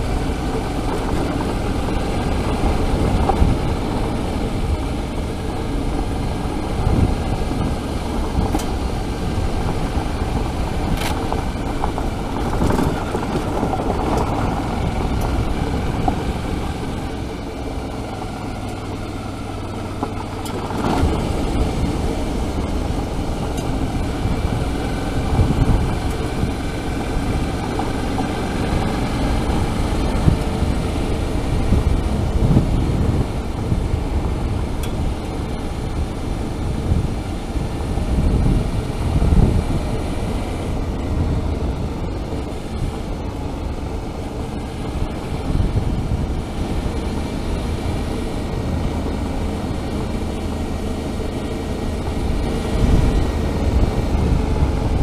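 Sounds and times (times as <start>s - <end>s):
motorcycle engine running: 0.0s - 55.0s.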